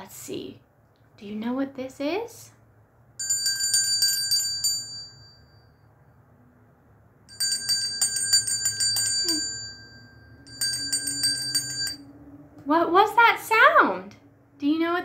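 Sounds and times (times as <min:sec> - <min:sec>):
hand bell ringing: 0:03.2 - 0:05.8, 0:07.3 - 0:12.0.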